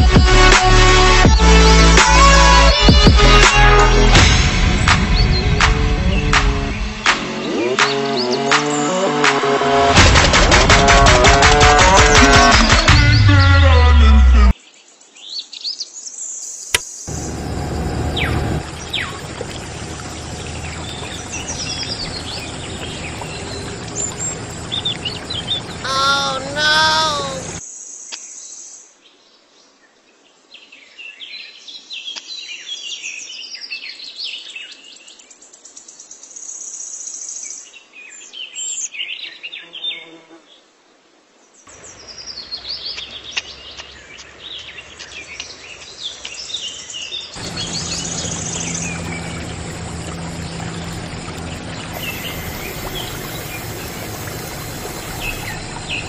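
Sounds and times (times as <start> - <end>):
small birds chirping: 16.4 - 27.6, 41.9 - 56.0
water splashing from pipe: 17.1 - 27.6, 47.4 - 56.0.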